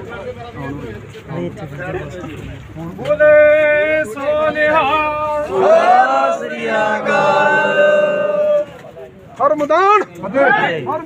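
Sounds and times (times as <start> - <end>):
men chanting: 3.1 - 8.7.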